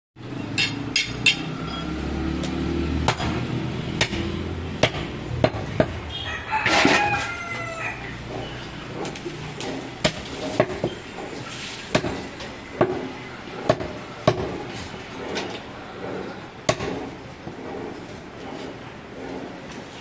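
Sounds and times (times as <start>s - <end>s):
rooster crowing: 6.1s - 8.3s.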